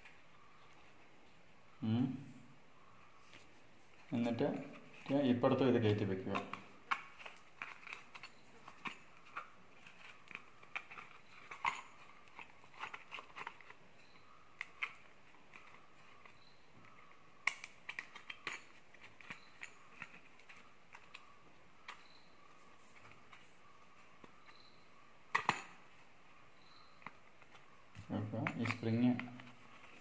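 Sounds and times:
plastic clicks taps and rustles: 14.6s - 22.2s.

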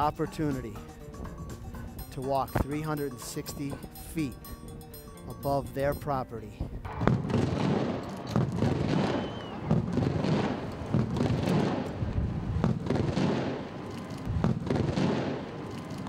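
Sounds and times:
fireworks bangs and crackles: 6.8s - 16.0s.

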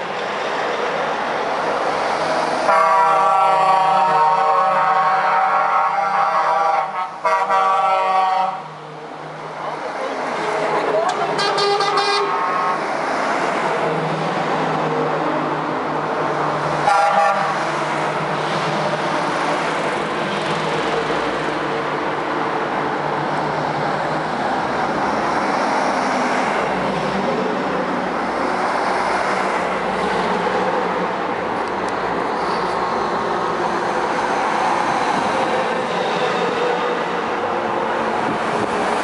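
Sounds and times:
trucks passing on road: 0.0s - 39.0s
truck horn blasts: 2.7s - 8.7s, 11.4s - 12.7s, 16.8s - 17.6s.

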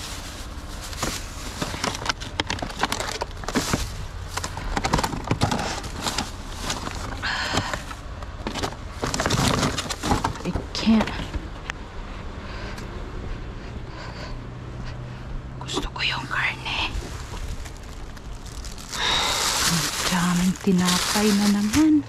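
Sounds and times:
plastic bags rustling: 0.0s - 10.6s, 16.7s - 22.0s
small knocks and clatters: 1.0s - 11.4s.

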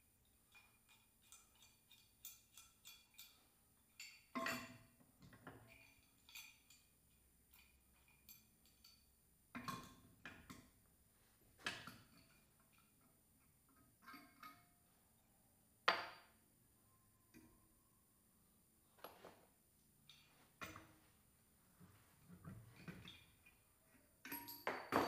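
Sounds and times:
clicks and clinks of hand tools: 0.5s - 3.4s, 4.0s - 6.9s, 24.2s - 25.0s.

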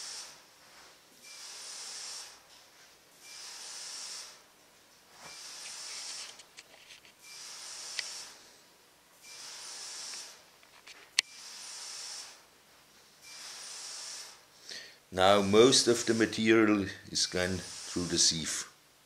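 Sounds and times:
sieve mesh hissing in pulses: 0.0s - 2.5s, 3.2s - 4.5s, 5.2s - 6.4s, 7.2s - 8.6s, 9.2s - 10.5s, 11.3s - 12.5s, 13.2s - 18.8s.

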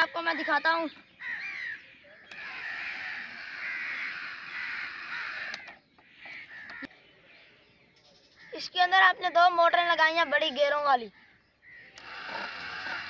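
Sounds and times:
small motors whirring: 2.3s - 5.8s, 12.0s - 13.0s.

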